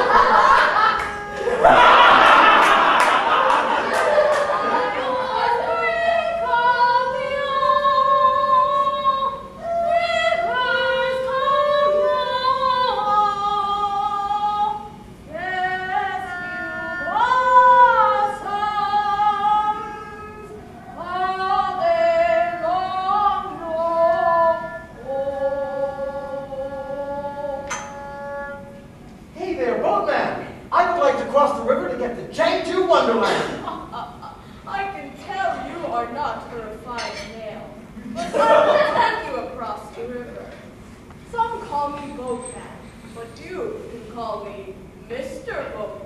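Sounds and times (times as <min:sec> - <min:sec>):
opera singing: 0:04.3 - 0:28.9.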